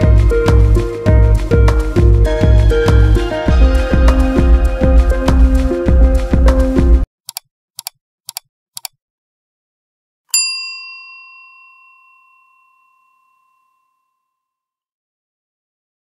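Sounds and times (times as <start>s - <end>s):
background music: 0.0s - 7.1s
short clicks: 7.3s - 9.0s
notification bell ding: 10.4s - 14.3s.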